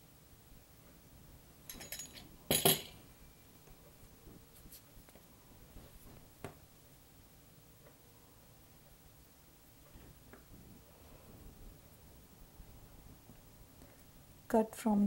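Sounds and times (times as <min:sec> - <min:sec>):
metal tool clinking down: 0:01.7 - 0:03.0.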